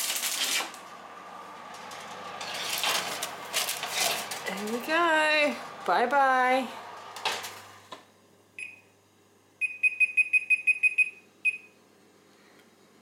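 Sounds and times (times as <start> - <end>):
oven door shutting: 0.5 - 8.0
oven control panel beeping: 8.6 - 8.9, 9.6 - 11.7.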